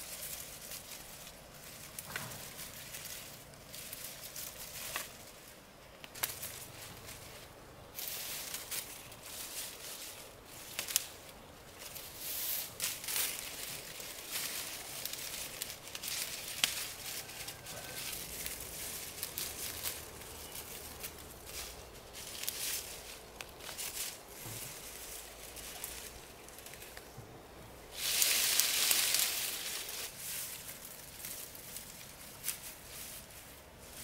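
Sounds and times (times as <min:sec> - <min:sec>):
rustling and crackling: 0:00.0 - 0:34.0.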